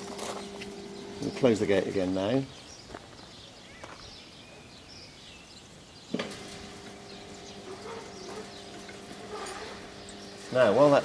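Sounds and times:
gate motor humming: 0.0 - 2.1, 6.1 - 11.0
gate motor click: 6.1 - 11.0.

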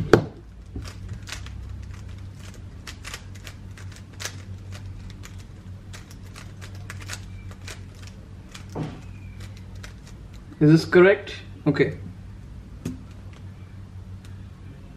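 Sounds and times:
puzzle cube clicking: 0.8 - 10.6.

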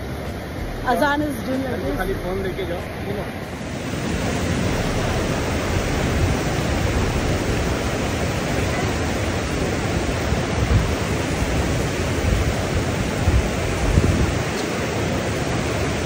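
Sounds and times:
river water rushing over weir: 0.0 - 16.0
low thumps: 0.5 - 3.0, 4.0 - 8.1.

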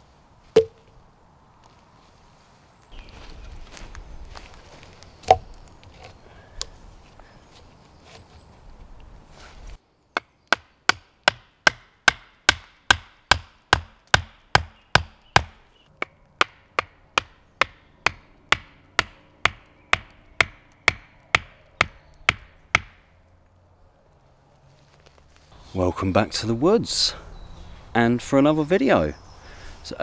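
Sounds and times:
sharp wooden knocks: 10.2 - 23.0.

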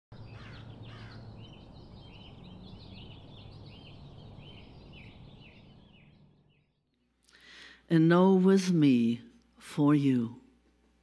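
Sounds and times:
high chirping calls: 0.1 - 7.0
low steady hum: 0.1 - 11.0.

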